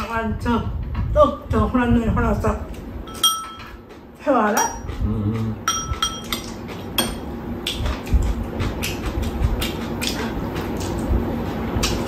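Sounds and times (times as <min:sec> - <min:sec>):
spoons clinking against bowls: 0:03.1 - 0:03.8, 0:05.6 - 0:07.3.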